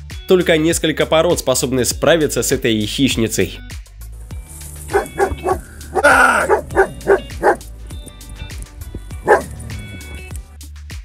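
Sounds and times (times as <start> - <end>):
dog barking: 4.9 - 7.6, 9.2 - 9.7.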